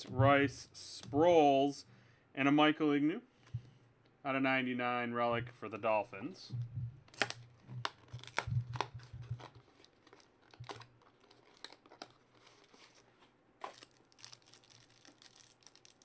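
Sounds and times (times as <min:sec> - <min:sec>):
foil wrapper crinkling and tearing: 0:07.1 - 0:16.0.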